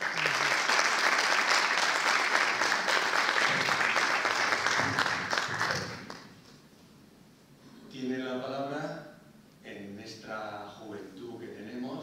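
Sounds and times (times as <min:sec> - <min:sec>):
audience applause: 0:00.0 - 0:06.4.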